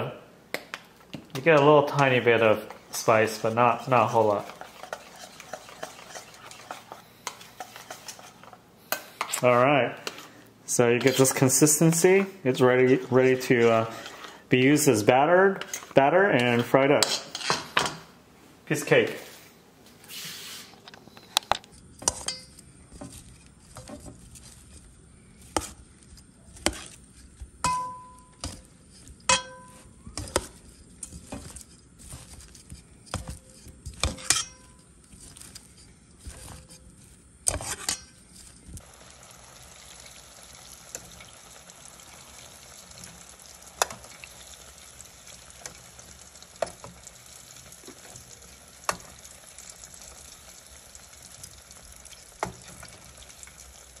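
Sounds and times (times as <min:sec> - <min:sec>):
deep-frying sizzle: 0:21.8 - 0:54.0
tongs clinking against metal bowl: 0:22.1 - 0:22.6, 0:27.6 - 0:31.6, 0:33.1 - 0:36.6.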